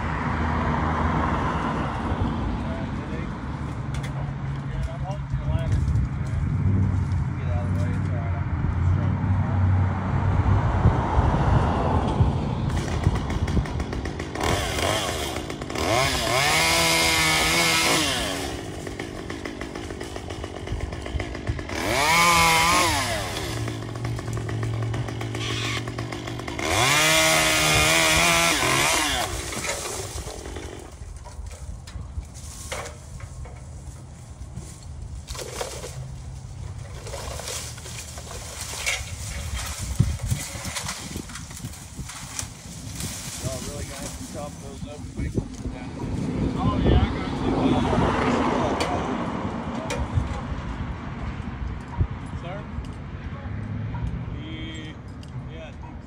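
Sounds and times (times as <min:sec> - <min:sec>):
chainsaw revving and idling: 0:12.7 - 0:31.4, 0:36.8 - 0:46.4.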